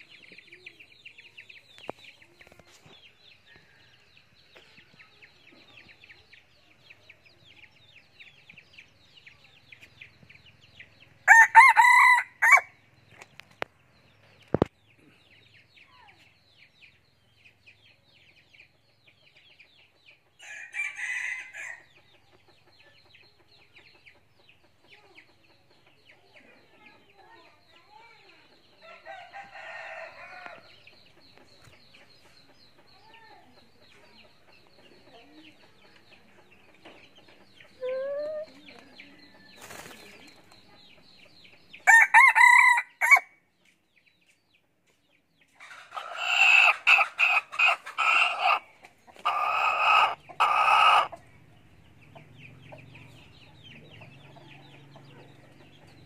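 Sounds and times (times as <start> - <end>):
rooster crowing: 11.3 - 12.7, 41.9 - 43.3.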